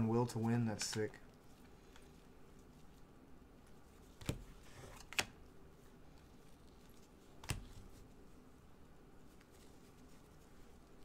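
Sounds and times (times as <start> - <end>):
soft sliding hiss of cards: 0.0 - 11.0
cards snapping: 7.4 - 7.9.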